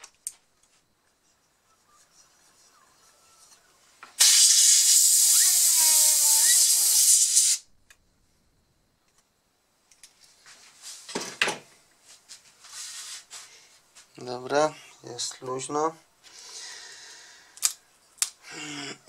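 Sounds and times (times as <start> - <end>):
rushing air hiss: 4.2 - 7.7.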